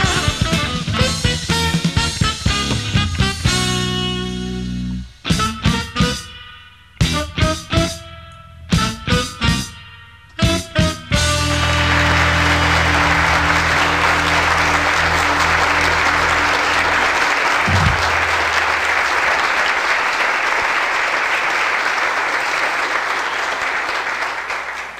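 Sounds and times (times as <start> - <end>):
theme music low chord: 2.9 - 19.0
audience applause: 11.4 - 24.9.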